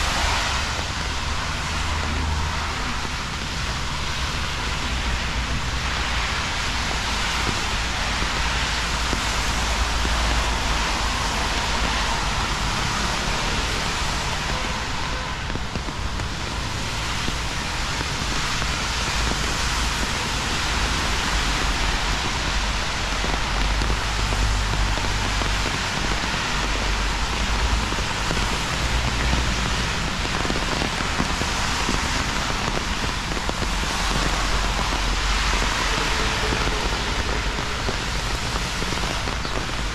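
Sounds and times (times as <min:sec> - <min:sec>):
steady rain hiss: 0:00.0 - 0:39.9.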